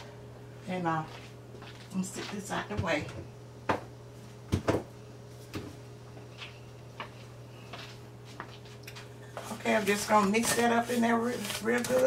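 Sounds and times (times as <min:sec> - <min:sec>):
steady low hum: 0:00.0 - 0:12.0
kitchen items knocking on counter: 0:04.5 - 0:04.9.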